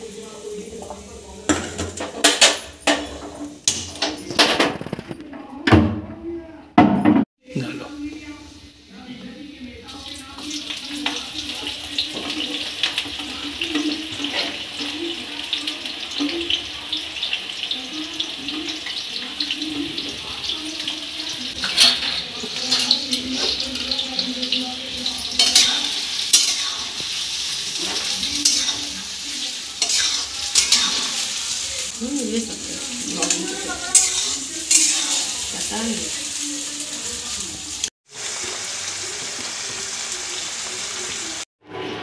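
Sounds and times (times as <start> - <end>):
onions sizzling in oil: 0.0 - 4.0, 7.9 - 42.0
metal spoon scraping pan: 21.5 - 24.0, 25.0 - 35.8.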